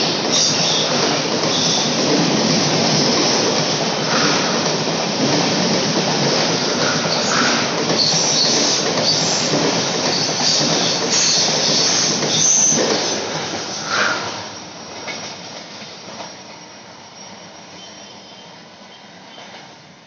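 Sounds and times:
train wheels rattling on rails: 0.0s - 20.0s
high-pitched wheel squeals: 16.2s - 19.5s.

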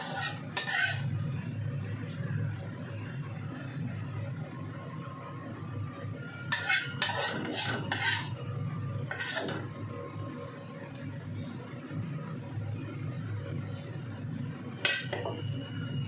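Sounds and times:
metal spoon scraping ceramic plate: 0.0s - 1.1s, 6.5s - 8.4s, 9.1s - 9.7s, 14.8s - 15.4s.

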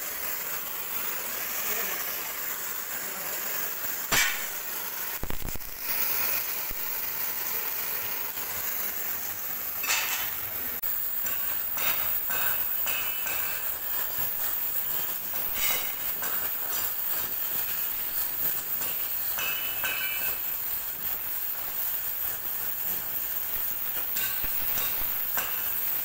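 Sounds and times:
gas torch hissing: 0.0s - 26.0s
sharp metal knock: 4.1s - 4.5s.

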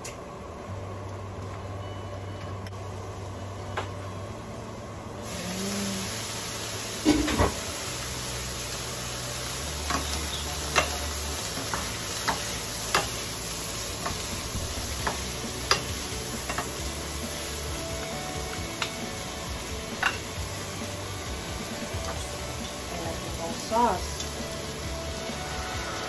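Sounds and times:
vegetables sizzling in a pan: 5.2s - 26.0s.

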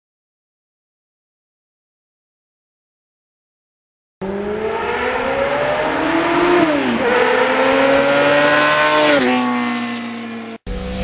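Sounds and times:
motorcycle engine accelerating: 4.2s - 11.0s.

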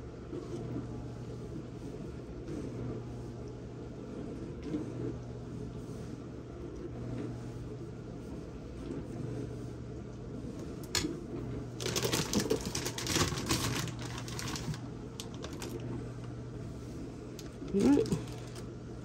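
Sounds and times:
steady low hum: 0.0s - 19.0s
crackling clicks and rustles: 11.8s - 16.4s, 17.3s - 18.7s.

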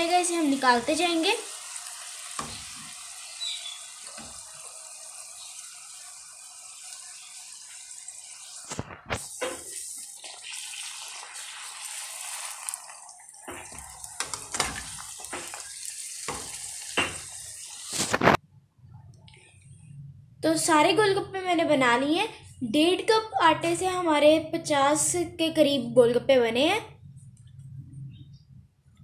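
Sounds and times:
puris deep-frying sizzle: 0.0s - 18.4s.

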